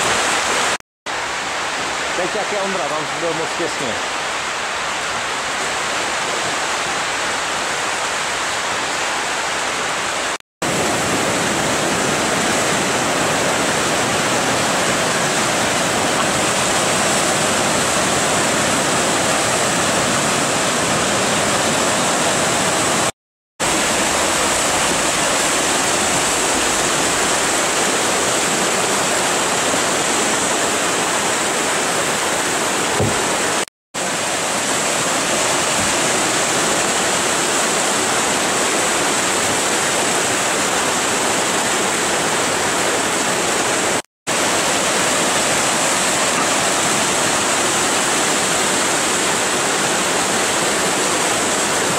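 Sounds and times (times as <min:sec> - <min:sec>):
whitewater rapids rushing: 0:01.6 - 0:51.9.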